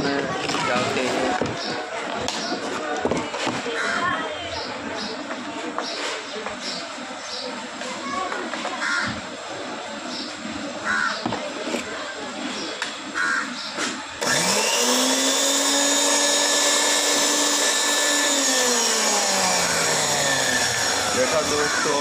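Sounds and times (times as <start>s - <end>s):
mixer grinder motor whining: 14.2s - 22.0s.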